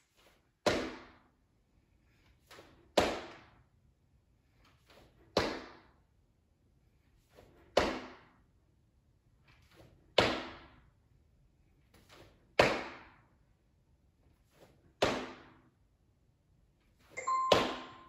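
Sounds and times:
short electronic beep: 0:17.2 - 0:18.0.

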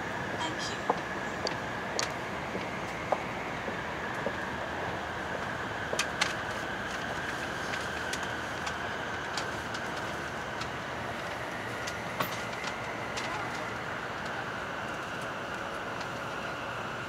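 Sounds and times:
train running noise inside carriage: 0:00.0 - 0:17.0
sharp clicks and ticks: 0:00.9 - 0:02.2.

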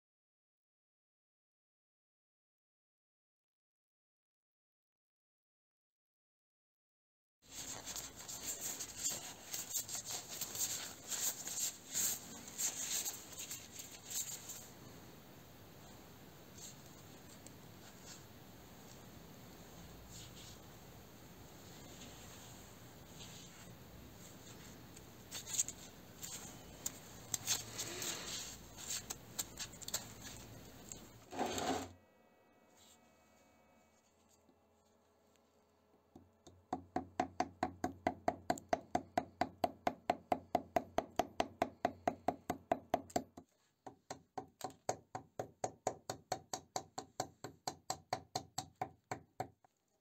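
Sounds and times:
rubber gloves rustling and crackling: 0:07.5 - 0:14.8, 0:21.7 - 0:31.6.

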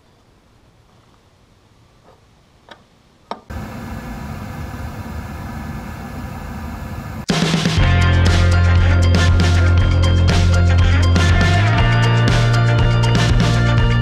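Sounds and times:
oil burner motor and fan hum: 0:03.5 - 0:07.3.

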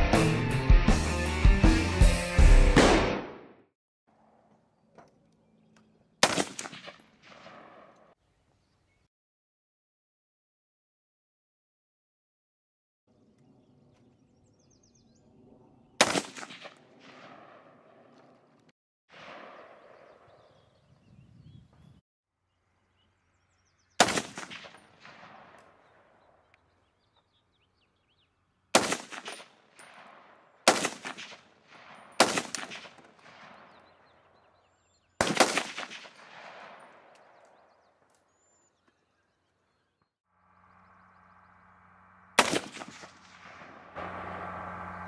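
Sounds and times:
rifle shots echoing: 0:06.2 - 0:08.2, 0:16.0 - 0:18.3, 0:19.1 - 0:20.5, 0:24.0 - 0:26.4, 0:28.7 - 0:34.2, 0:35.2 - 0:37.7, 0:42.4 - 0:44.4.

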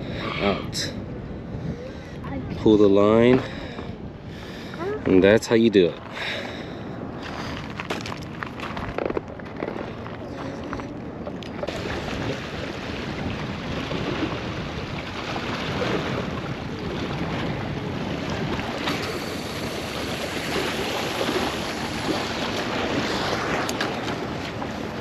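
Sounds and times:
waves washing: 0:00.0 - 0:25.0
wind noise on microphone: 0:00.0 - 0:25.0.

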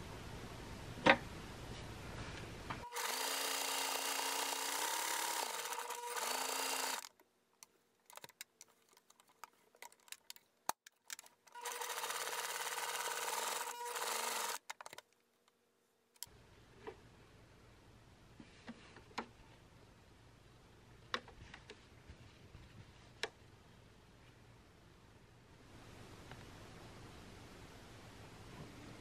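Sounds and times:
sewing machine stitching: 0:02.8 - 0:07.1, 0:11.1 - 0:14.7.

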